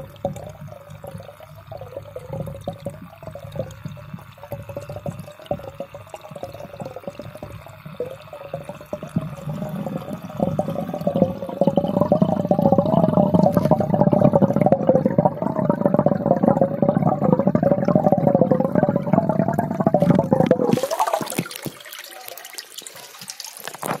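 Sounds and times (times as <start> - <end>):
muffled water churning underwater: 0.0 - 24.0
splashing water hiss: 20.5 - 24.0.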